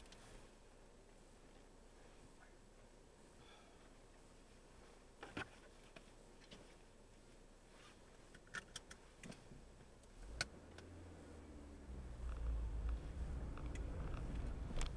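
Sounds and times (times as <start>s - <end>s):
light clicks and ticks: 0.0s - 0.2s, 12.2s - 14.9s
faint steady hiss: 0.0s - 14.9s
low rumble: 10.2s - 14.9s.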